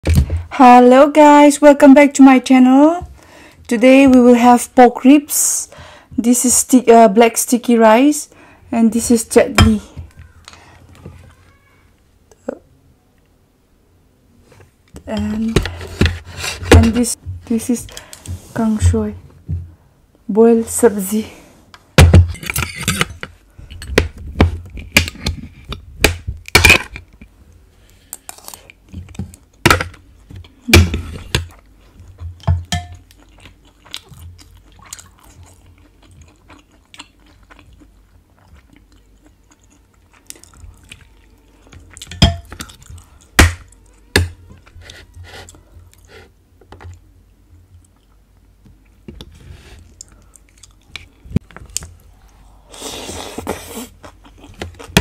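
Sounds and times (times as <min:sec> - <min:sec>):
chewing: 0:31.5 - 0:46.2, 0:49.8 - 0:52.4, 0:53.0 - 0:55.0
cutlery clinking on bowls: 0:32.4 - 0:33.0.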